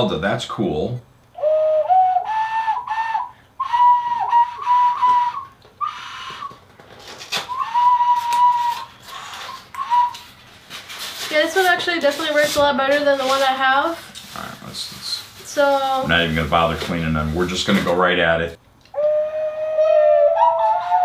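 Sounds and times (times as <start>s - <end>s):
ocarina notes: 1.4s - 6.6s, 7.5s - 10.4s, 18.9s - 21.0s.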